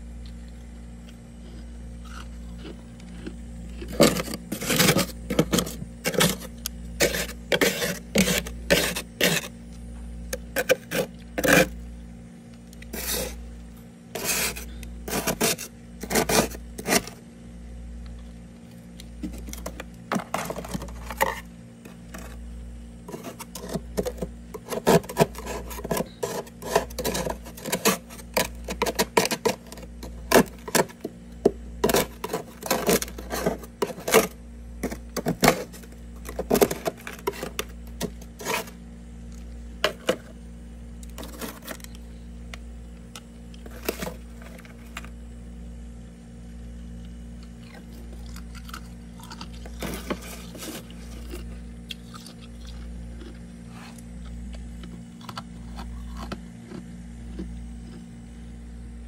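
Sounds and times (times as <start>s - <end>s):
steady low hum: 0.0s - 59.0s
plastic scraper scraping frost: 3.8s - 9.5s, 10.3s - 11.8s, 12.8s - 13.4s, 14.1s - 17.2s, 19.2s - 22.4s, 23.0s - 31.1s, 31.8s - 38.8s, 41.1s - 41.9s, 43.6s - 45.1s, 49.6s - 51.6s.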